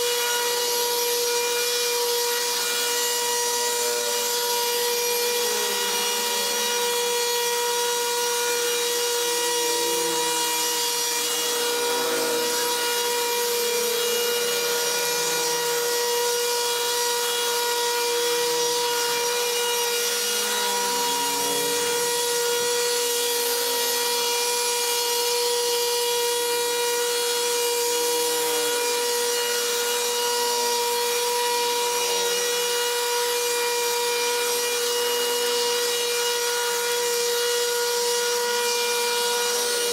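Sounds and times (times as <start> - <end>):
brush cutter whining: 0.0 - 26.0.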